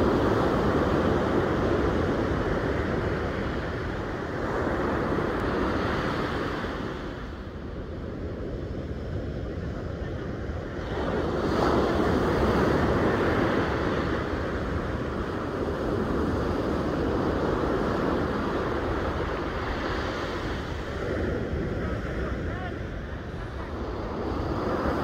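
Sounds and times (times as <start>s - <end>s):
wind buffeting microphone: 0.0s - 25.0s
surf breaking on beach: 9.2s - 25.0s.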